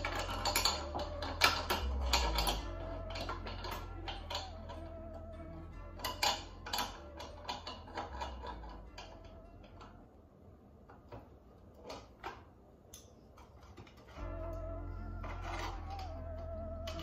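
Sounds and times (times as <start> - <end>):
hand tool clicking on metal: 0.0 - 4.9, 6.0 - 9.9.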